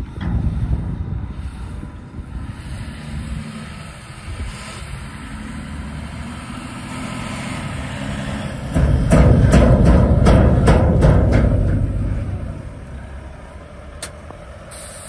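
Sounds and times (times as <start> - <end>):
truck diesel engine: 0.0 - 15.0
music with heavy drums: 8.8 - 12.6.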